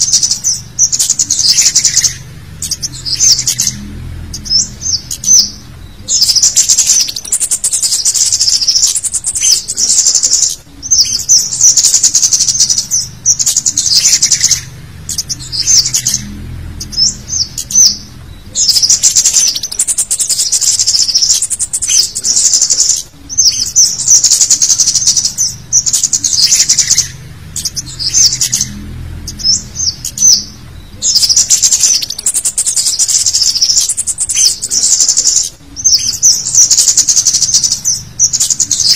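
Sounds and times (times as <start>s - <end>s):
bird chittering: 0.0s - 38.9s.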